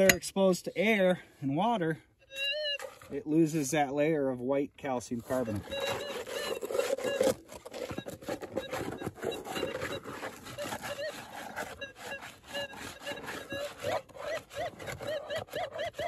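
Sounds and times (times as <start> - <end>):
metal detector warbling tones: 2.3 - 2.8, 5.3 - 14.1
coil scraping gravel: 4.9 - 15.1.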